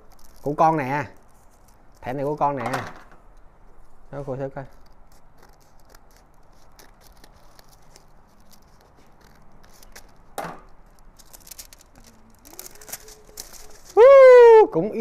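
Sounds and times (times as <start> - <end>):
paper crackling and rustling: 0.0 - 2.6, 4.2 - 14.1
scissors snipping paper: 4.7 - 14.0.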